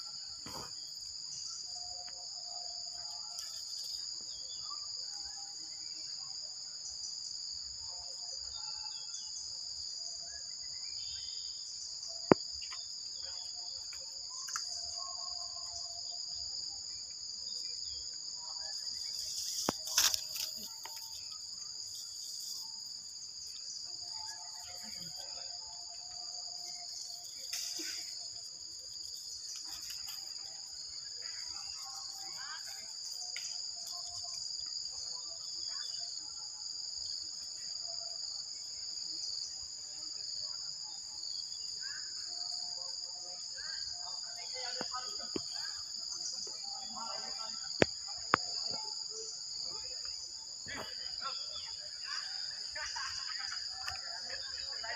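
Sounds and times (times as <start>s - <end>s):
high-pitched insect drone: 10.7s - 37.6s.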